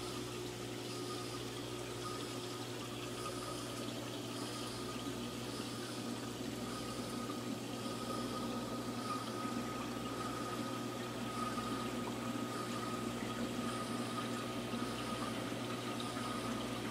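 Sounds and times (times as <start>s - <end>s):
circulating water wash: 0.0s - 16.9s
constant low hum: 0.0s - 16.9s.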